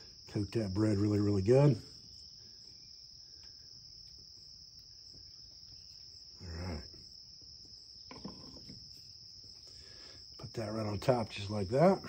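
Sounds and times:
insect chorus buzzing: 0.0 - 12.0.

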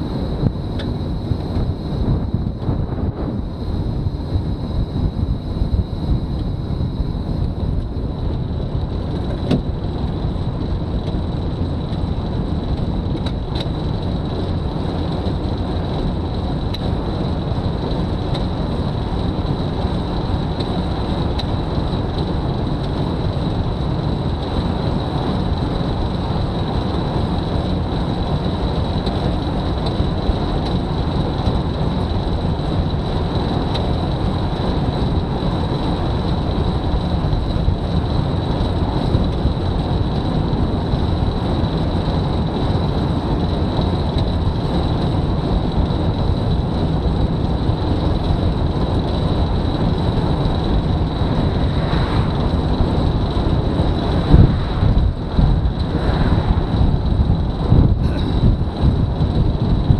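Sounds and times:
tyre and wind rush: 0.0 - 11.0, 35.4 - 59.9.

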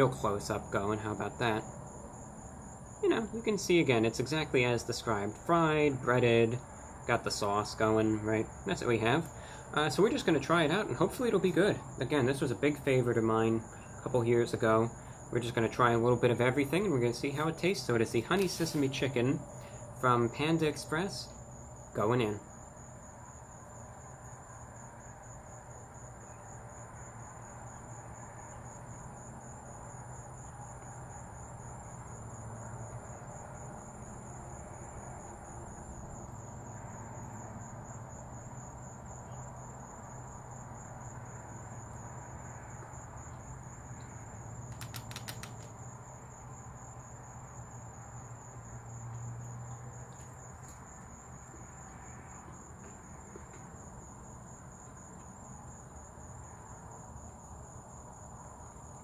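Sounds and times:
higher insect trill: 0.0 - 59.0
insects trilling: 0.0 - 59.0
quick run of clicks: 44.7 - 45.8.

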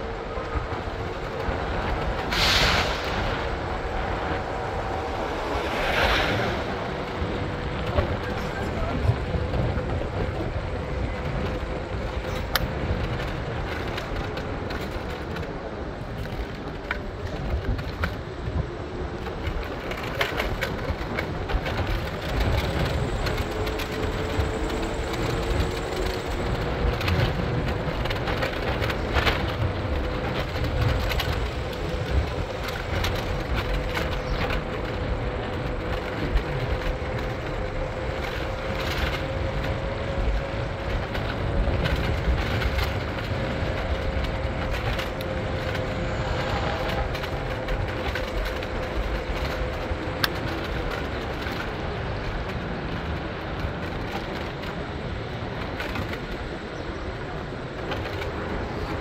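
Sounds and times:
vehicle ride rumble: 0.0 - 59.0.

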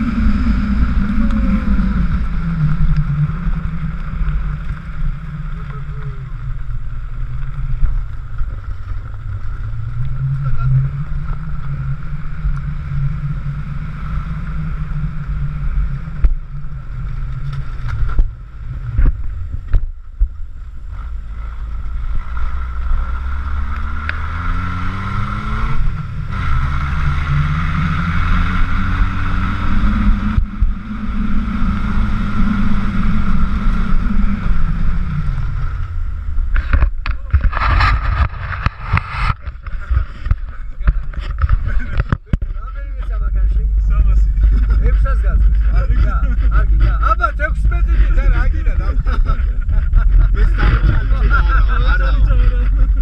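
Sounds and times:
car engine running: 0.0 - 53.0
wind on microphone: 0.0 - 53.0.

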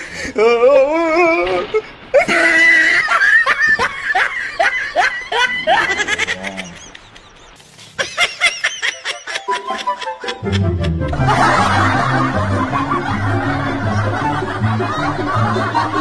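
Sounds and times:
person laughing hard: 2.2 - 16.0.

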